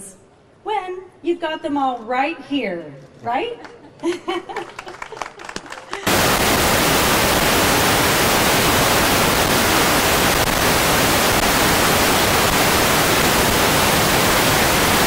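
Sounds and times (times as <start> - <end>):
static hiss: 6.1 - 15.0.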